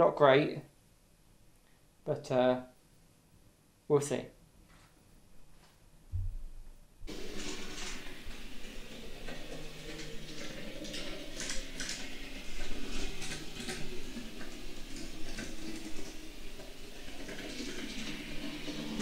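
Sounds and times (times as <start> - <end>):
model train motor hum: 7.1 - 19.0.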